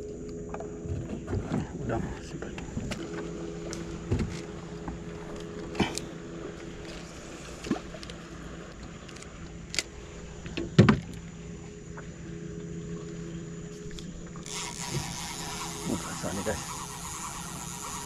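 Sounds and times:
boat engine humming: 0.0s - 18.0s.

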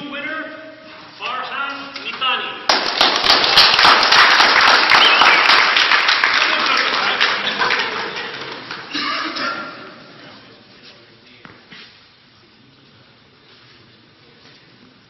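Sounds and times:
small audience clapping: 2.7s - 9.1s.

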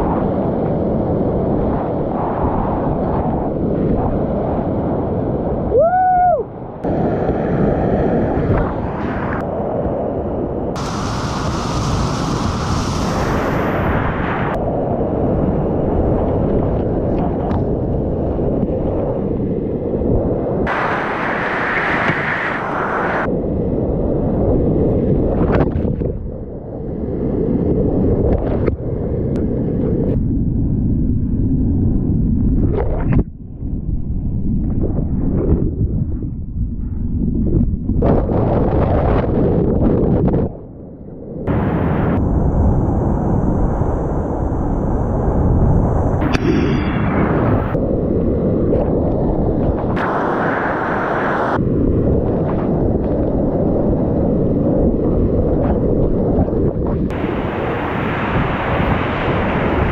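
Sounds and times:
wind buffeting microphone: 0.0s - 59.9s
person whooping: 5.7s - 6.5s
whitewater rushing: 50.0s - 51.6s.

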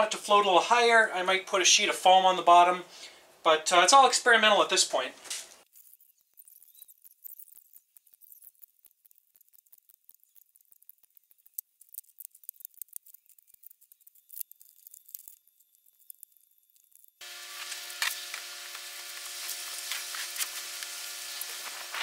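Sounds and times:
duct tape ripping off roll: 5.2s - 22.0s.

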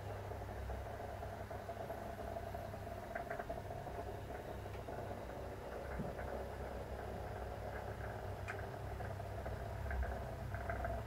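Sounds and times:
steady low hum: 0.0s - 11.0s
faint light ticks: 7.7s - 11.0s.

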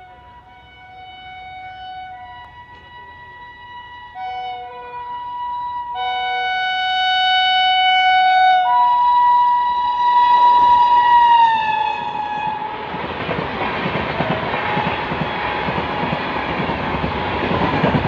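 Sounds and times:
locomotive horn blasts: 0.0s - 12.9s
train coaches clattering past: 2.1s - 4.2s, 9.8s - 18.0s.

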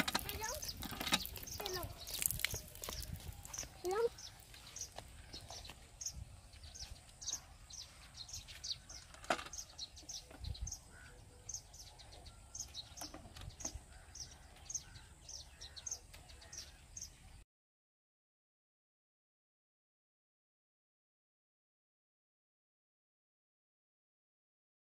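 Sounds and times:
small birds chirping: 0.0s - 17.4s.

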